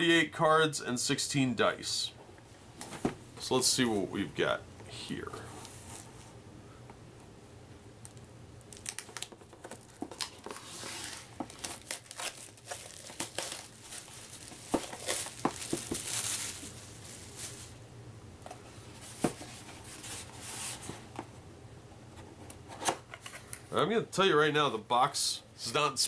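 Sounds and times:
packaging crinkling and tearing: 8.0s - 17.8s.

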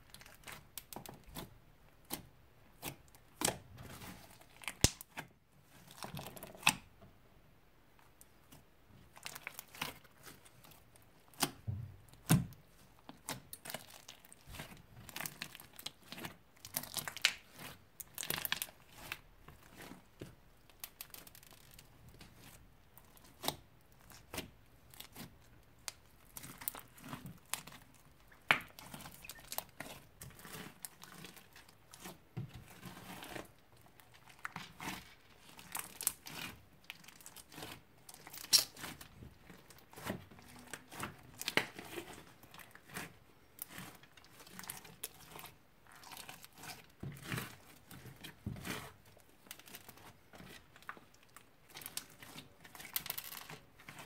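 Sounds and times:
slime crackling and tearing: 0.1s - 6.9s, 9.1s - 54.0s
slime snapping: 4.7s - 5.1s, 38.4s - 38.8s.

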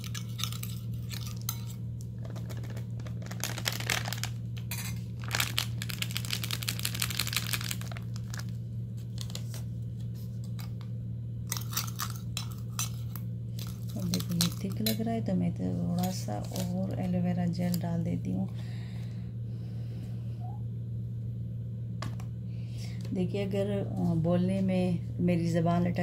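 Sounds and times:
plastic packet crinkling: 2.2s - 9.7s, 13.6s - 14.9s.

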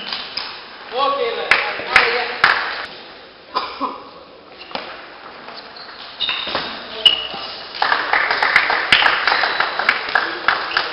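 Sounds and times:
people clapping: 1.5s - 2.9s, 7.7s - 10.9s.

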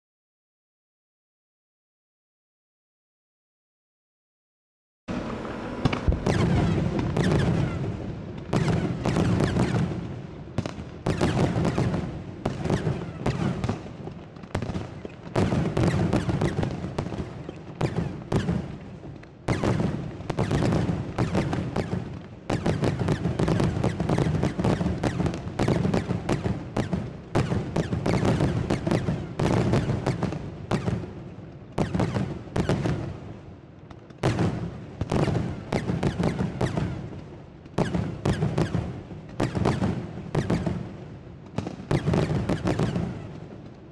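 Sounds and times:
fireworks bangs with echo: 5.1s - 43.9s.

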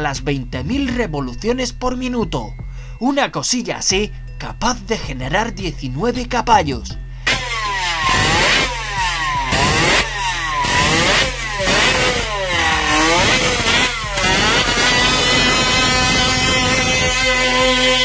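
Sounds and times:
two-stroke motorcycle engine revving: 7.2s - 18.0s.

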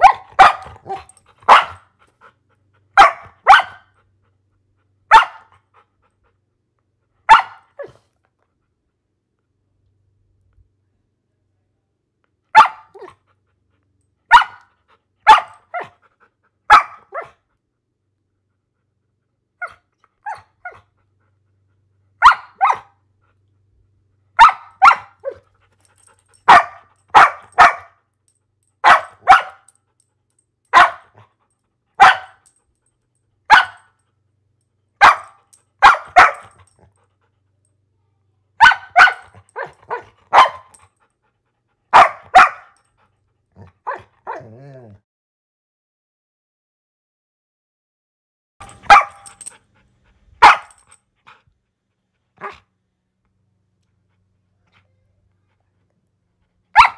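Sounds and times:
dog barking: 0.0s - 1.9s, 3.0s - 3.9s, 5.1s - 5.6s, 7.2s - 8.0s, 12.5s - 13.2s, 14.3s - 16.0s, 16.7s - 17.4s, 22.2s - 23.0s, 24.4s - 25.4s, 26.4s - 28.0s, 28.8s - 29.7s, 30.7s - 31.3s, 32.0s - 32.5s, 33.5s - 34.0s, 35.0s - 36.8s, 38.6s - 40.8s, 41.9s - 42.8s, 43.6s - 44.6s, 48.6s - 49.6s, 50.4s - 50.9s, 52.4s - 52.7s.

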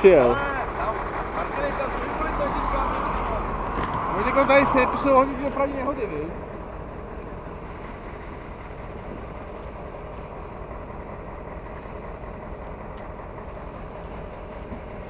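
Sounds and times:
engine humming steadily: 0.0s - 15.0s.

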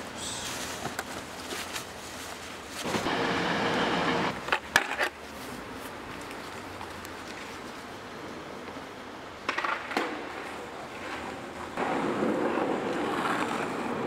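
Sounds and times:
faint street ambience: 0.0s - 14.0s
skateboard clacking on stone paving: 4.4s - 5.2s, 9.4s - 14.0s.

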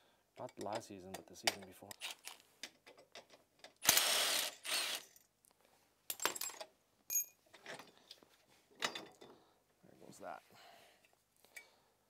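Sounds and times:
metal tools clinking: 6.1s - 8.2s, 8.8s - 9.4s.

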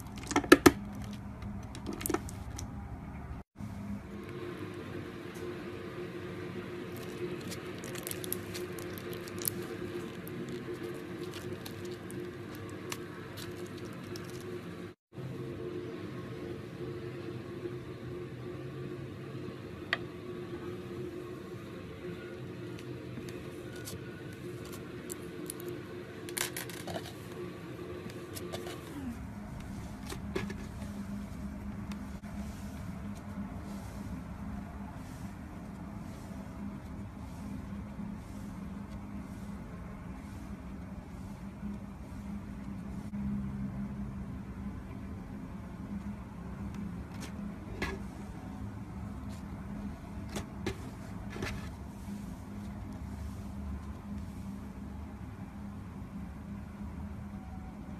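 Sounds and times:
low hum: 0.0s - 57.9s
slime crackling and popping: 6.9s - 14.6s.

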